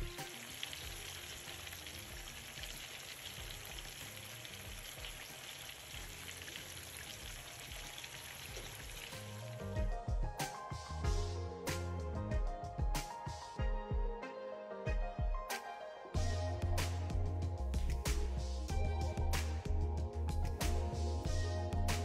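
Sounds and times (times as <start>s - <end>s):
chicken frying in oil: 0.0s - 9.6s.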